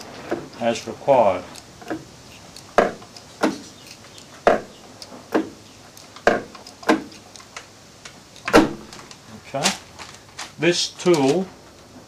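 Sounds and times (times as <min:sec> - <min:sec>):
lathe turret metallic clunks: 0:02.7 - 0:03.7, 0:04.4 - 0:05.6, 0:06.2 - 0:07.2.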